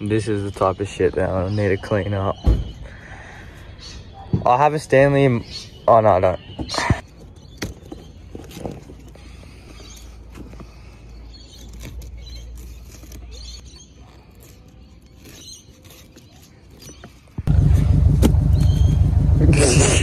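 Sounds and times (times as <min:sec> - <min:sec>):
low handling rumble: 0:17.4 - 0:20.0.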